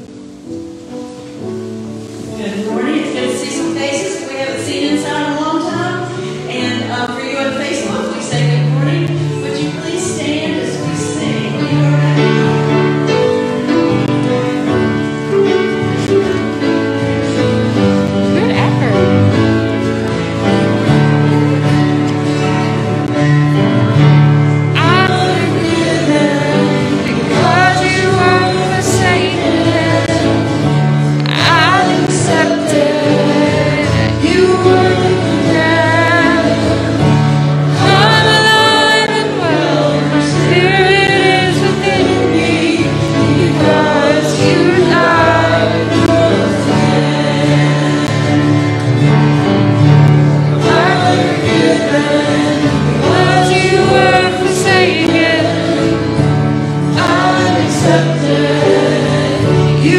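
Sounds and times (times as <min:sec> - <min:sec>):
strummed guitars: 0:00.0 - 0:59.9
woman and men singing: 0:24.8 - 0:48.8, 0:50.5 - 0:59.9.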